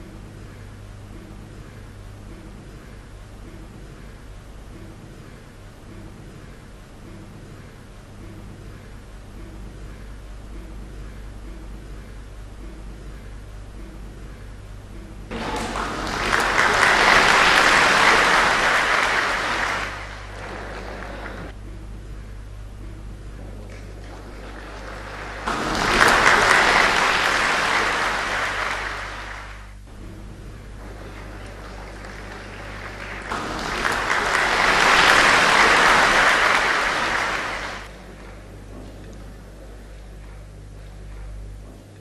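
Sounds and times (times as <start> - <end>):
audience applauding: 15.3 - 21.6, 23.5 - 40.5.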